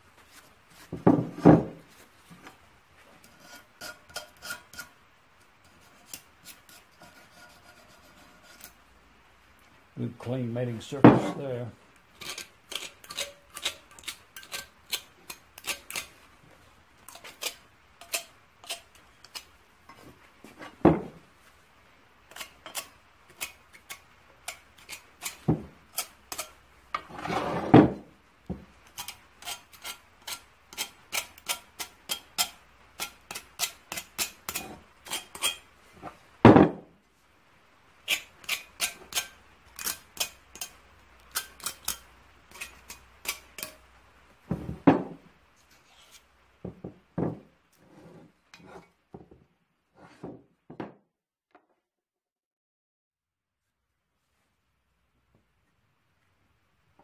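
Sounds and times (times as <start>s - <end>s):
hand tool scraping rust: 3.0s - 8.8s, 10.9s - 16.3s, 17.0s - 21.1s, 22.3s - 28.1s, 28.9s - 36.2s, 38.0s - 43.8s.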